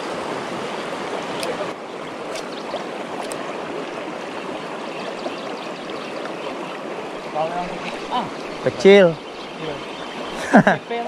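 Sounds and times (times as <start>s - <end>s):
river rushing over rocks: 0.0s - 5.1s.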